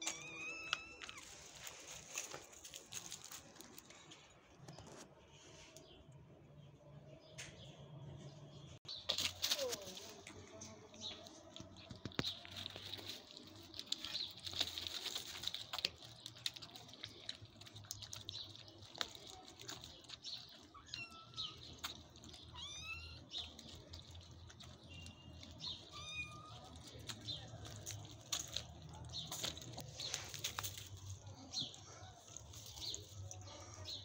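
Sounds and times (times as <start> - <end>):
kittens chirping: 0.0 - 3.4, 11.0 - 34.0
kittens lapping and chewing: 0.0 - 4.3, 9.4 - 34.0.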